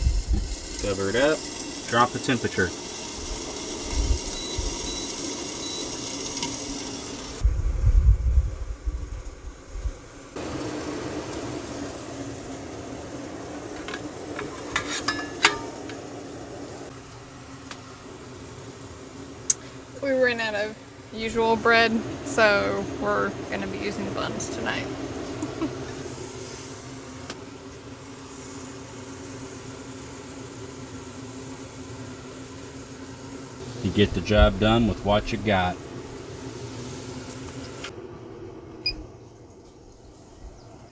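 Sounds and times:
steak sizzling in a pan: 0.0s - 7.4s, 9.7s - 37.9s
small motor humming: 0.0s - 40.6s
plates clinking: 13.6s - 16.1s.

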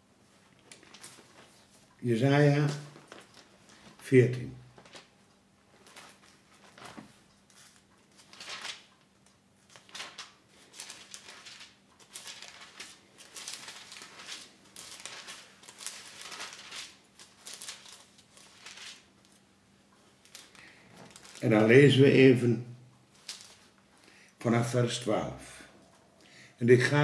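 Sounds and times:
paper pages rustling: 0.3s - 22.0s, 23.1s - 23.8s.

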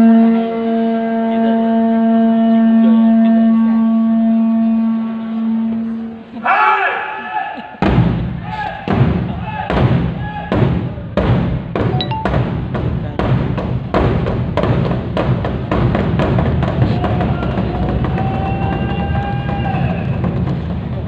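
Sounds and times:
drum-led music: 11.0s - 21.0s.

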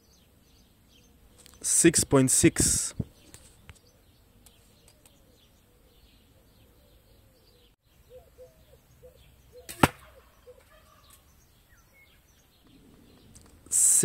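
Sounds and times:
faint bird chirps: 3.1s - 13.5s
arrow hitting target: 9.6s - 10.2s.

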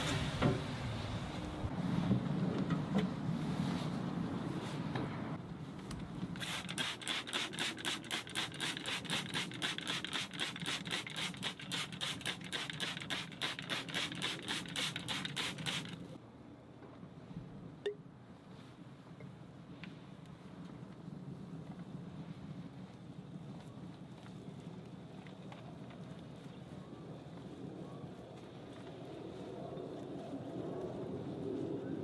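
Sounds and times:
seasoning shaker shaken: 6.4s - 16.0s.

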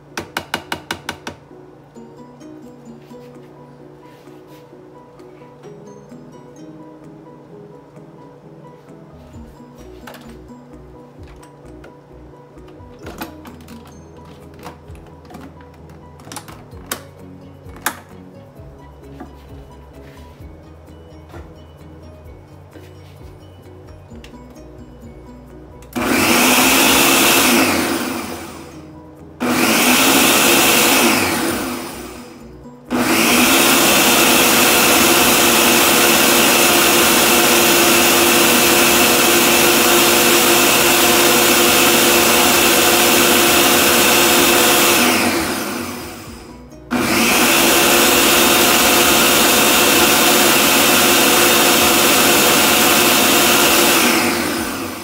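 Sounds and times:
electric blender running: 26.0s - 28.8s, 29.4s - 55.0s.

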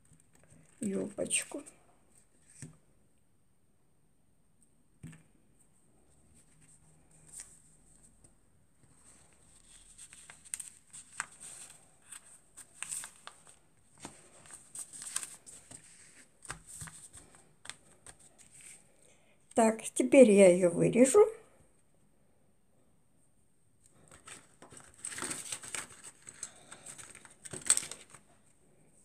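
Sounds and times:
paper and fabric rustling: 8.8s - 18.9s, 23.9s - 28.4s.

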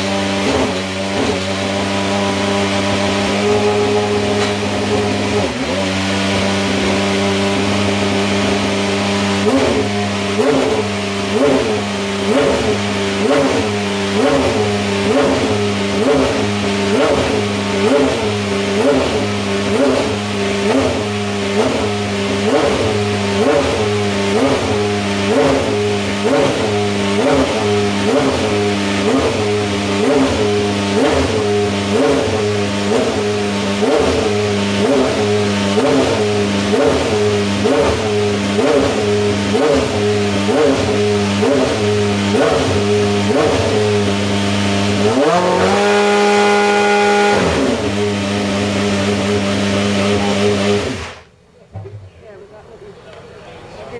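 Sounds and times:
car engine running in pulses: 0.0s - 51.3s.

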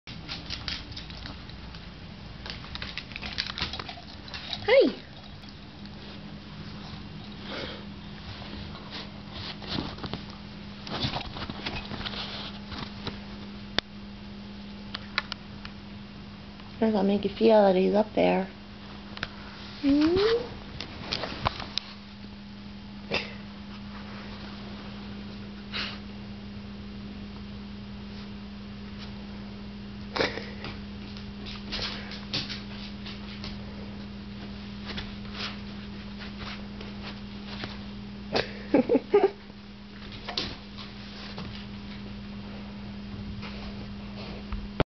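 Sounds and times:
dog claws clicking on wooden floor: 0.1s - 1.8s, 2.4s - 4.6s
steady hum: 0.1s - 44.8s.

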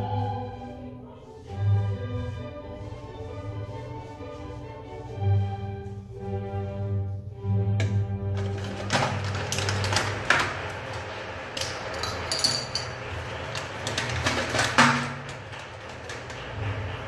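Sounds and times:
glassy clink: 11.9s - 12.9s.

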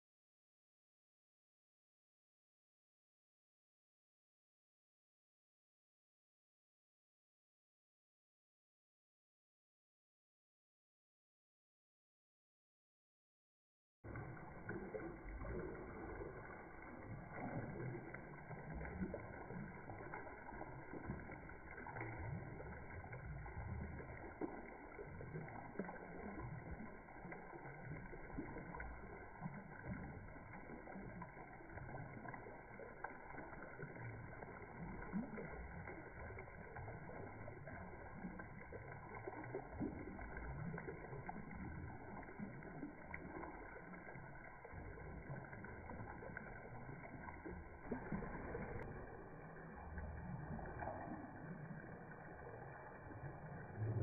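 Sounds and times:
fountain jets splashing water: 14.1s - 54.0s.

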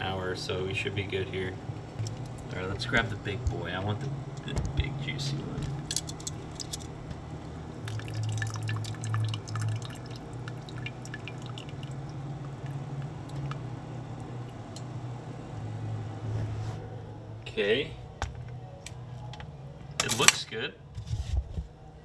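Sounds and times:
low steady hum: 0.0s - 22.0s
water dripping into a pot: 7.8s - 14.9s.

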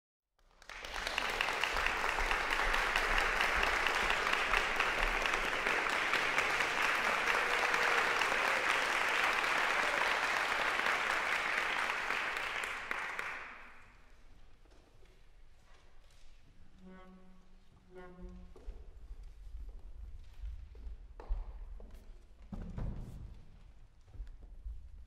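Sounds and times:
audience applauding: 0.4s - 13.9s.

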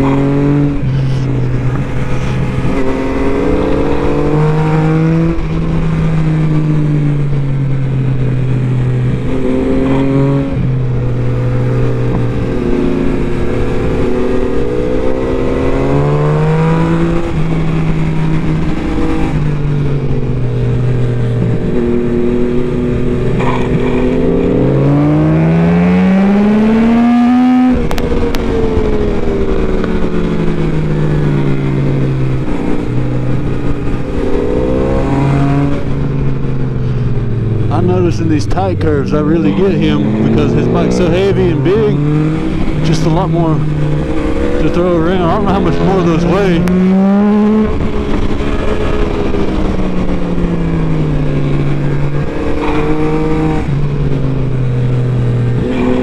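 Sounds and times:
wind rush: 0.0s - 7.1s
motorcycle engine revving: 0.0s - 56.0s.

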